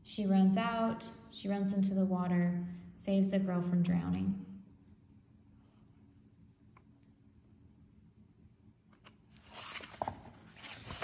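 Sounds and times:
paper pages rustling: 9.4 - 11.0.

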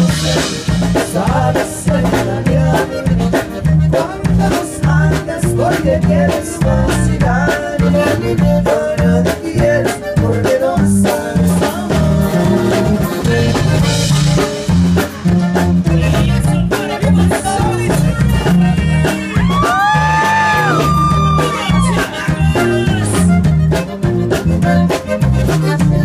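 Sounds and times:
drum kit: 0.0 - 26.0
electric bass: 0.0 - 26.0
melodic lead line: 0.0 - 26.0
percussion: 0.0 - 26.0.

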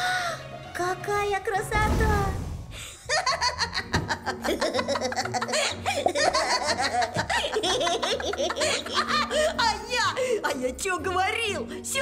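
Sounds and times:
light background music: 0.0 - 12.0
hearty laughter: 3.0 - 9.8.

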